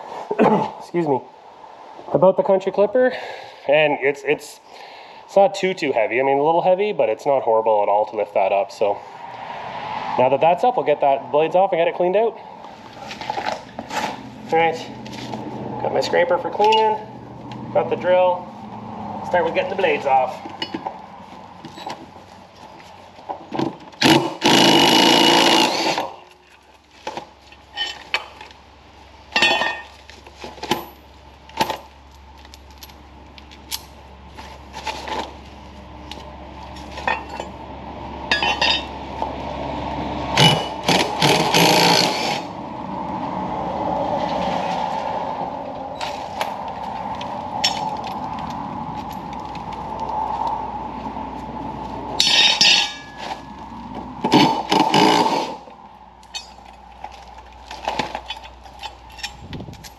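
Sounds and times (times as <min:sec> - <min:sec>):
metal clinks of bolts and tools: 0:36.7 - 0:37.6, 0:38.3 - 0:38.9, 0:52.2 - 0:53.4, 0:56.2 - 0:56.8, 0:58.1 - 0:59.9.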